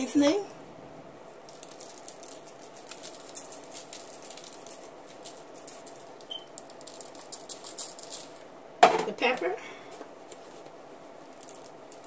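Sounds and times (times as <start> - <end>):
seasoning pattering on chicken: 1.5 - 8.4.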